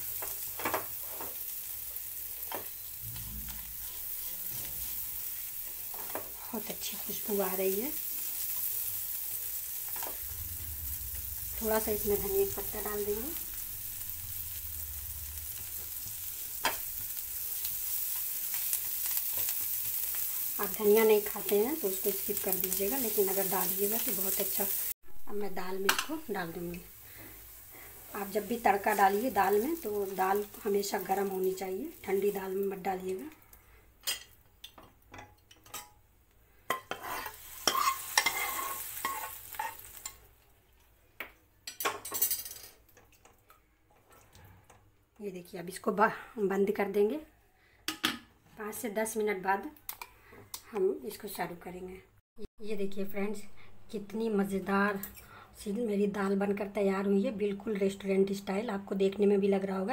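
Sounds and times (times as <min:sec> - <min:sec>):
food sizzling in a frying pan: 0:00.0 - 0:34.7, 0:35.6 - 0:40.4
spatula stirring: 0:02.7 - 0:06.3, 0:36.7 - 0:40.2.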